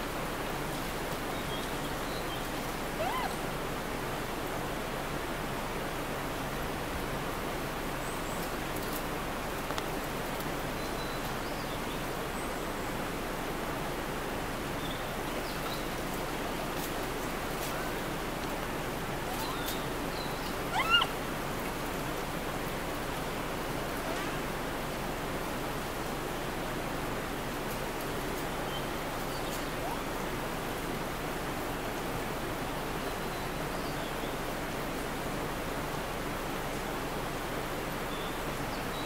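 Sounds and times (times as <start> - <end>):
monkey coo call: 2.9 - 3.5, 19.3 - 19.9, 20.6 - 21.2, 29.7 - 30.2.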